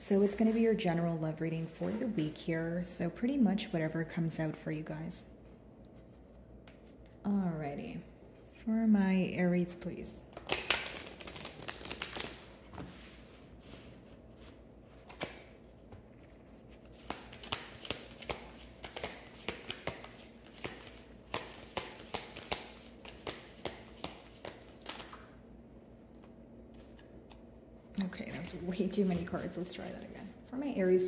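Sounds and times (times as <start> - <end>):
cards being shuffled: 10.4 - 13.1, 14.9 - 25.3, 26.1 - 30.4.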